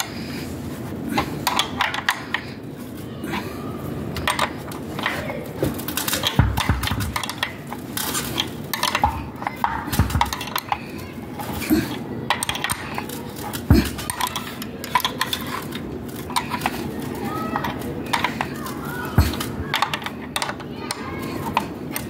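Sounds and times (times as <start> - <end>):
wrench clinking against metal bolts: 12.3 - 16.8.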